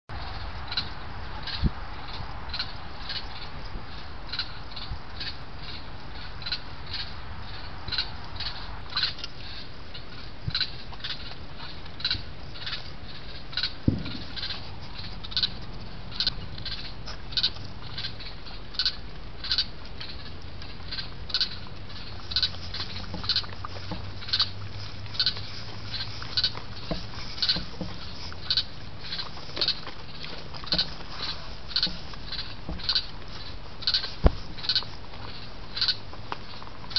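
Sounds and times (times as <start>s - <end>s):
raccoon crunching food: 0.1s - 36.9s
sharp thump on camera: 13.8s - 16.3s.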